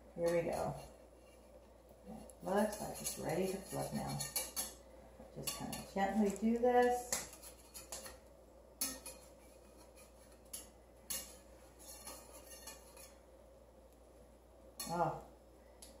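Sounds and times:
metal spatula scraping frying pan: 0:00.2 - 0:04.8, 0:05.4 - 0:13.3.

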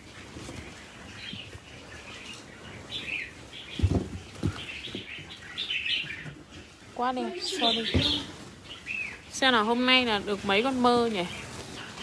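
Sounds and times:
birds chirping: 0:00.0 - 0:12.0
dull thumps: 0:03.8 - 0:05.3, 0:07.7 - 0:08.4.

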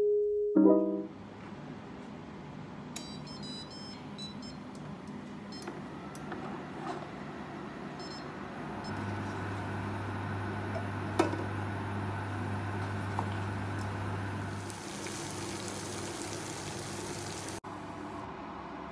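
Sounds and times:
cooktop control beeps: 0:03.0 - 0:04.6
cooktop hum and whine: 0:04.0 - 0:18.9.

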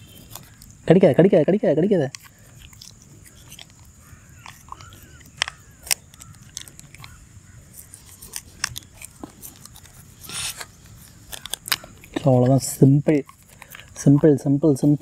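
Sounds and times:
sharp clicks: 0:02.0 - 0:07.2
short rasp: 0:10.2 - 0:10.7.

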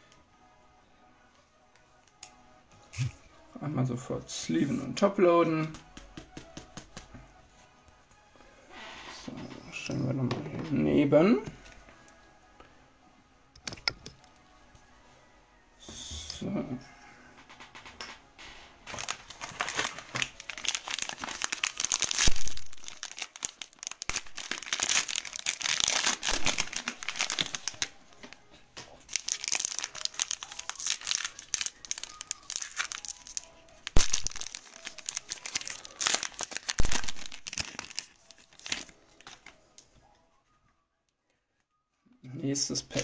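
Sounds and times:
foil wrapper crinkling and tearing: 0:18.8 - 0:39.6.

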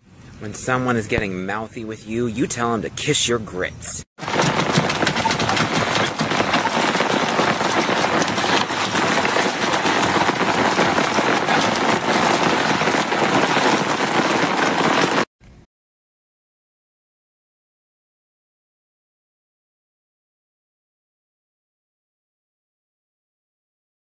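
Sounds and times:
heavy rain on concrete roof: 0:04.2 - 0:15.3.

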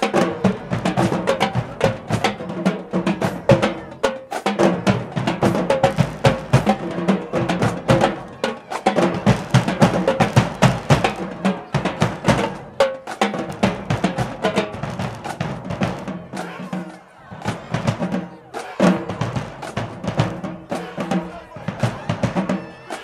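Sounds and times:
snare drums: 0:00.0 - 0:23.0
bass drums: 0:09.0 - 0:12.8.

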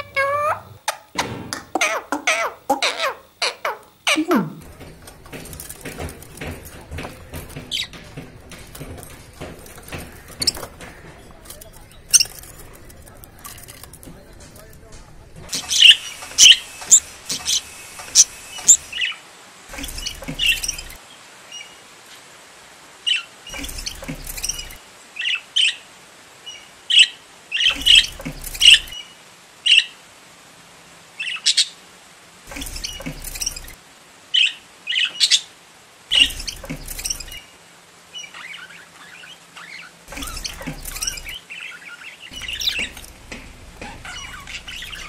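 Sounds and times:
budgerigars chirping: 0:00.0 - 0:00.8, 0:01.8 - 0:21.0, 0:26.5 - 0:29.0, 0:32.5 - 0:33.8, 0:36.1 - 0:37.5, 0:38.2 - 0:45.0.

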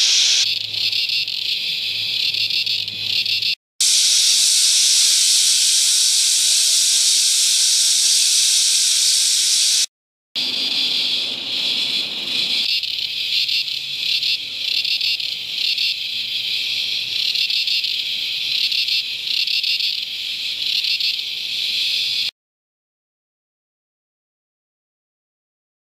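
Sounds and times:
cicadas screeching: 0:00.0 - 0:22.3.

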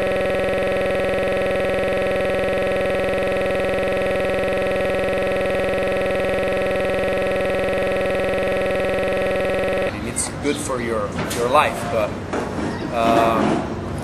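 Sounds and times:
steady electronic buzzing tone: 0:00.0 - 0:09.9.

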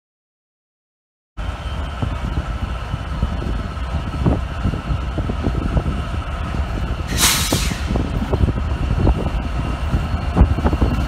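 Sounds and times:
freight locomotives rumbling past: 0:01.4 - 0:11.0
hiss of air: 0:07.1 - 0:08.2.

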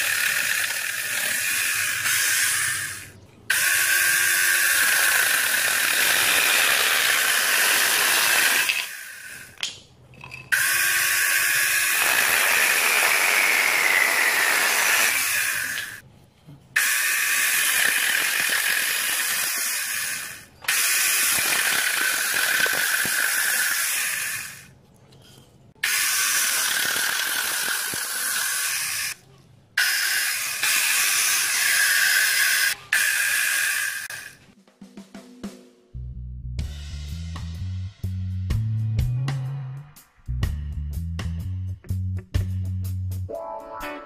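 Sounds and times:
electric chainsaw whining: 0:00.0 - 0:09.6, 0:10.5 - 0:16.0, 0:16.8 - 0:24.7, 0:25.8 - 0:29.2, 0:29.8 - 0:34.4
chain cutting into wood: 0:04.7 - 0:09.0, 0:17.6 - 0:24.5, 0:25.9 - 0:29.2.

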